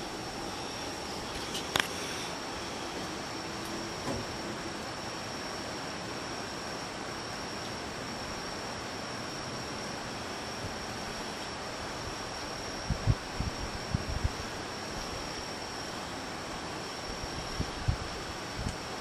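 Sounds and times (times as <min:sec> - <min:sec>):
broad hiss: 0:00.0 - 0:07.2
insect chorus: 0:00.0 - 0:19.0.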